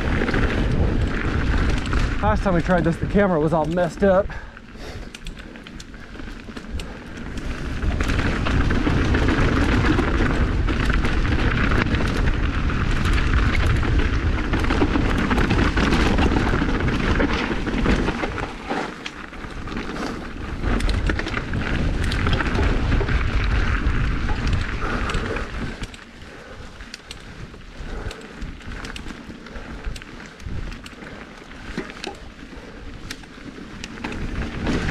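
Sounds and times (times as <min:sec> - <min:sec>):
wind buffeting microphone: 0:00.0 - 0:04.5, 0:05.8 - 0:18.6, 0:19.5 - 0:31.2
bike clicks and rattles: 0:00.0 - 0:34.9
tyre rumble on dirt: 0:34.0 - 0:34.9.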